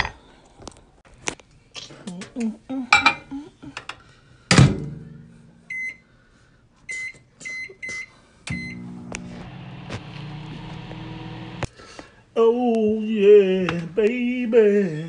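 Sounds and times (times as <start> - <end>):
microwave humming: 8.5 - 11.7.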